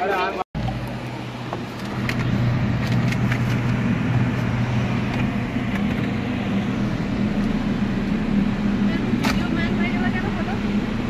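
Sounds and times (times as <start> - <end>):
bus engine drone: 0.0 - 11.0.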